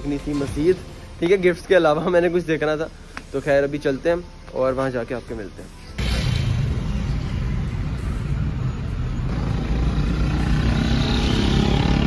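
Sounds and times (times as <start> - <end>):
road rumble: 6.0 - 12.0.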